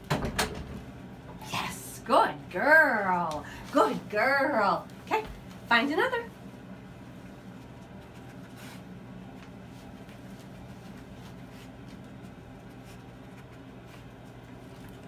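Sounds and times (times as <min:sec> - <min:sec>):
steady low hum: 0:00.0 - 0:15.0
dog paws clicking on floor: 0:07.5 - 0:15.0.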